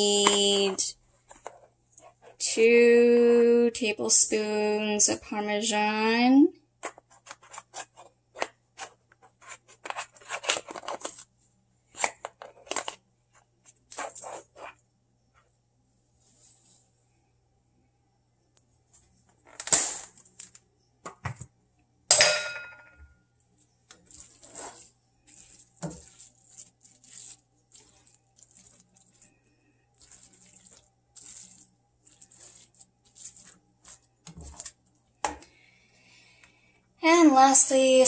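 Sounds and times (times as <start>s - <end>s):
spatula scraping skillet: 23.6s - 35.4s.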